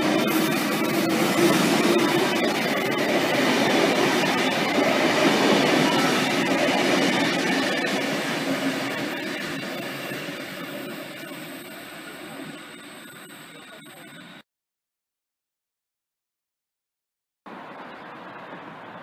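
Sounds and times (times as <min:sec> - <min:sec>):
train wheels rumbling on rails: 0:00.0 - 0:13.6.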